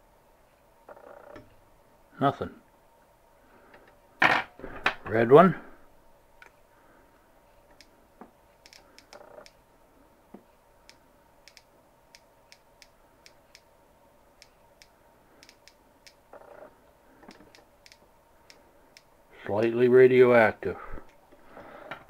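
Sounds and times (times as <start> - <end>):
geiger counter clicking: 8.6 - 9.6, 10.8 - 13.7, 14.4 - 16.6, 17.2 - 19.1.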